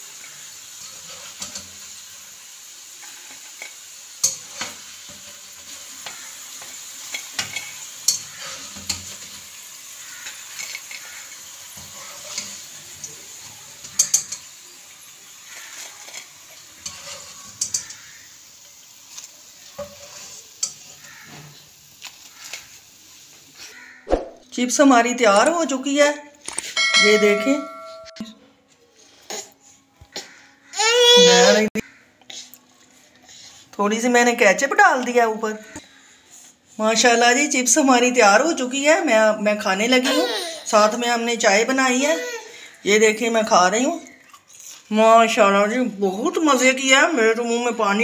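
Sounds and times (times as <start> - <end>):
ghee sizzling in a frying pan: 0.0 - 26.0, 32.7 - 36.2, 36.8 - 48.0
metal utensil clinking on pan: 3.6 - 4.8, 7.0 - 9.4, 13.8 - 14.5, 15.7 - 18.0, 26.6 - 28.3.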